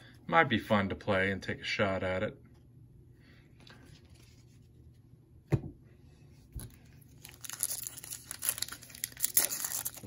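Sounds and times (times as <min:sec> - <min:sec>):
foil wrapper crinkling: 0:07.0 - 0:10.0.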